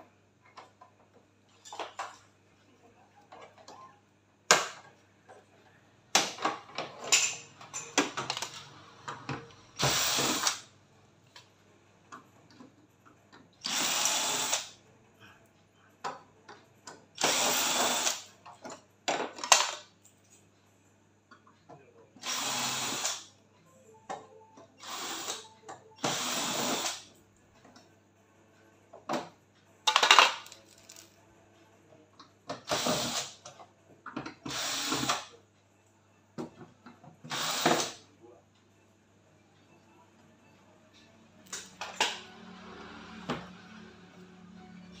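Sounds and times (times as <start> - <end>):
electric screwdriver running: 9.8 - 10.6, 13.6 - 14.7, 17.2 - 18.2, 22.2 - 23.2, 26.0 - 27.0, 34.5 - 35.2, 37.3 - 37.9.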